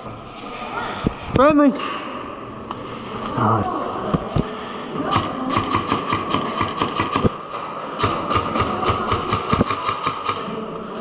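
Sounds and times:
airsoft guns firing rapidly: 5.1s - 7.4s, 8.0s - 10.5s.

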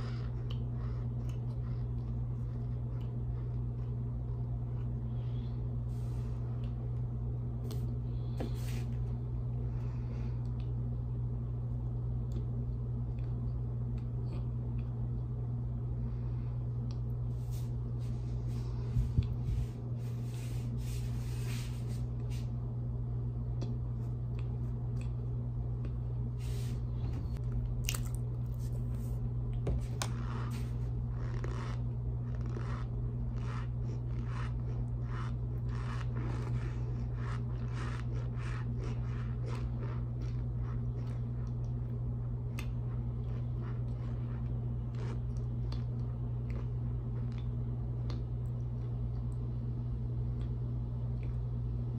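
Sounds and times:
low hum: 0.0s - 51.9s
chewing crunches: 27.4s - 28.8s, 30.0s - 49.2s.

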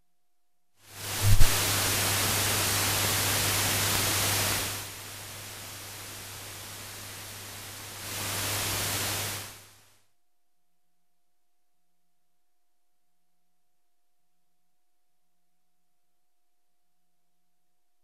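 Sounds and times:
film hiss and static: 0.8s - 10.1s
pop: 1.2s - 1.6s.

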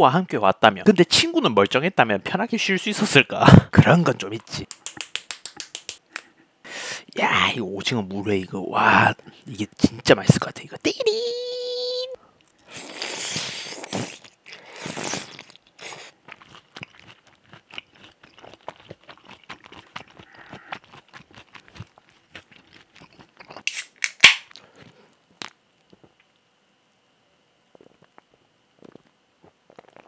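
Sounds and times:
sharp mouth sounds: 4.6s - 6.3s
wet chewing: 12.4s - 23.8s
slurping noodles: 12.7s - 16.2s, 28.8s - 30.0s.

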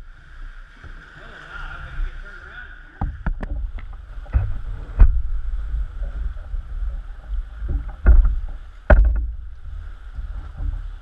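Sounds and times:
heavy low thumps: 3.0s - 10.4s
water slapping against kayak hull: 3.0s - 11.0s.

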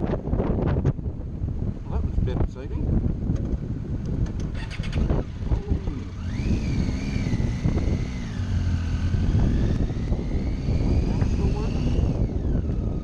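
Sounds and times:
wind noise on microphone: 0.0s - 13.0s
motorcycle engine running: 3.0s - 13.0s.

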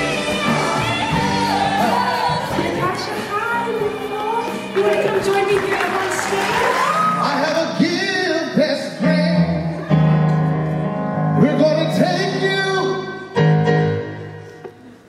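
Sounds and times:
man singing into a microphone: 7.2s - 9.8s, 11.4s - 13.2s.

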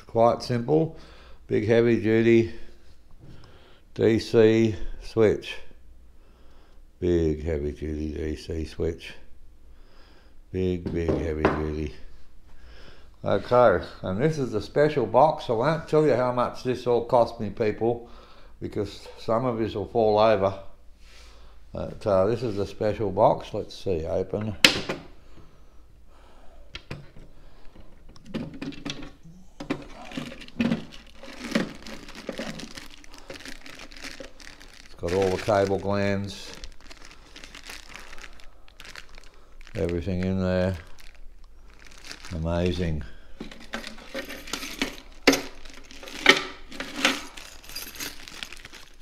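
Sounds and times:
plastic parts clacking: 26.8s - 42.8s, 43.4s - 49.0s
plastic bag rustling: 29.6s - 49.0s
metal pieces clinking: 29.7s - 37.5s, 43.4s - 49.0s.

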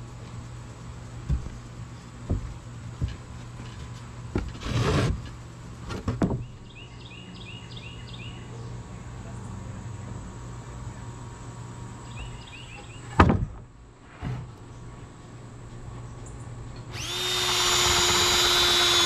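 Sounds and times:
wooden boards knocking: 2.3s - 3.2s
board scraping across plywood: 2.3s - 6.2s, 14.0s - 14.6s.

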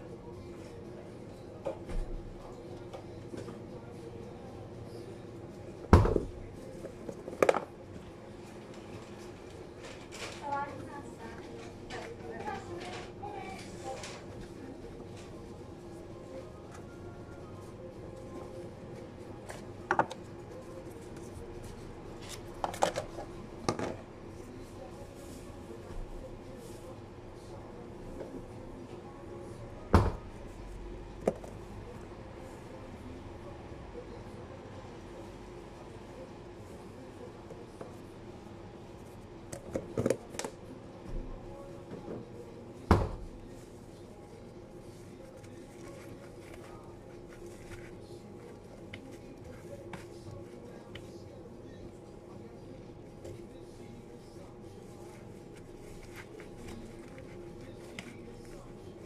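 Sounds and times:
steady low hum: 14.2s - 59.0s.

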